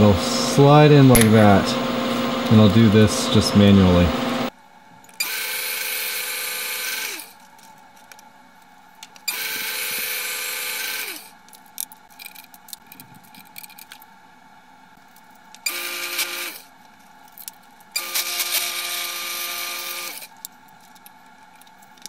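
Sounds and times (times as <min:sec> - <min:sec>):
drill press boring into metal: 0:00.0 - 0:04.5
handling clicks and rattles: 0:11.4 - 0:14.1, 0:20.3 - 0:22.0.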